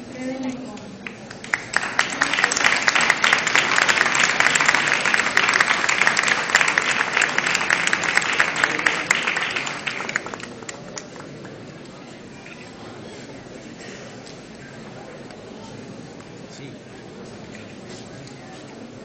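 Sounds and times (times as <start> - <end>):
crowd applauding: 1.0 - 12.0.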